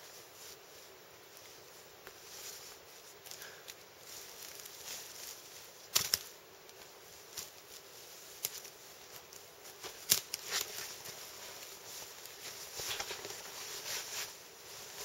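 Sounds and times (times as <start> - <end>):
footsteps on forest floor: 1.2 - 15.0
twigs snapping: 5.9 - 7.6, 8.4 - 11.2, 12.2 - 13.5.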